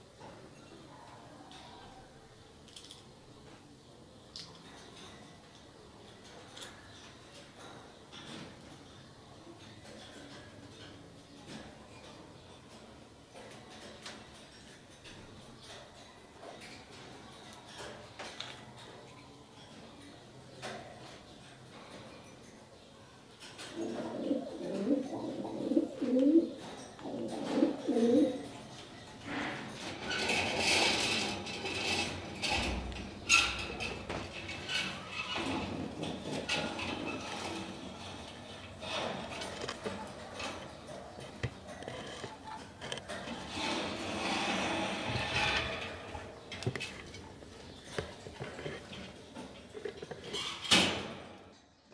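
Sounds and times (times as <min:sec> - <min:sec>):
wire birdcage rustling: 0:23.5 - 0:51.7
pigeon cooing: 0:23.6 - 0:28.6.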